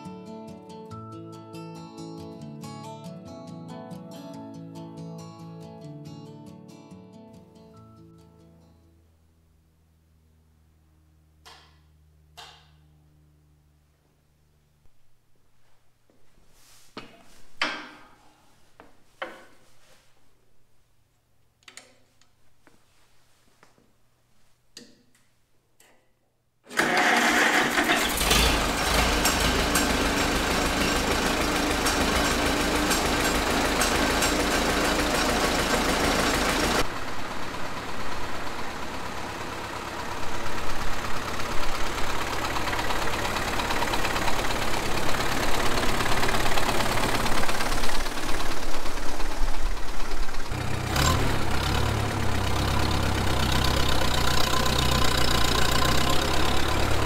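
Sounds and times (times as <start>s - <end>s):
tractor engine running: 26.7s - 57.0s.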